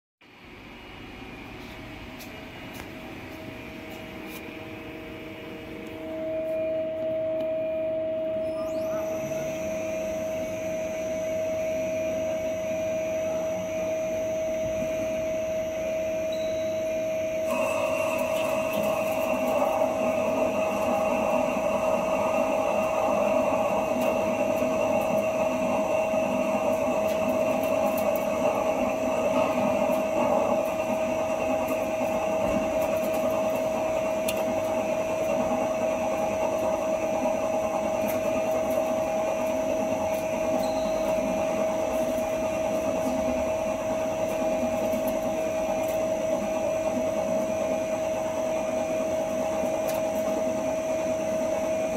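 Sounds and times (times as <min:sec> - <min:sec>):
lathe cutting metal: 0:17.4 - 0:51.9.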